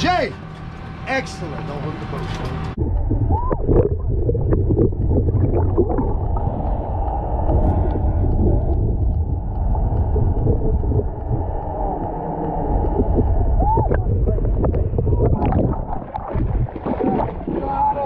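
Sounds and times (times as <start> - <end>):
muffled underwater rumble: 1.4 - 18.0
water gurgling: 2.7 - 18.0
water splashes: 2.7 - 18.0.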